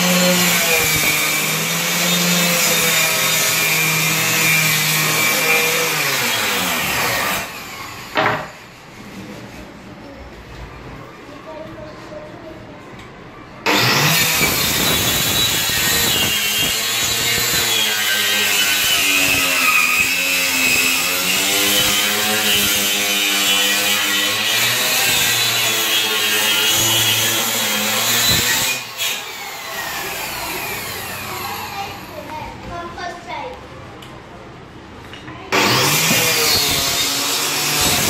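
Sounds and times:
circular saw cutting plywood: 0.0s - 9.2s, 13.6s - 32.1s, 35.5s - 38.0s.

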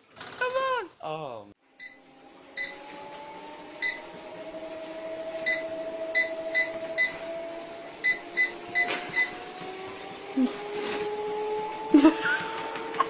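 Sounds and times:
treadmill motor whining: 1.6s - 13.0s
short electronic beeps: 1.8s - 2.0s, 2.6s - 2.8s, 3.8s - 4.1s, 5.5s - 7.2s, 8.0s - 9.4s.

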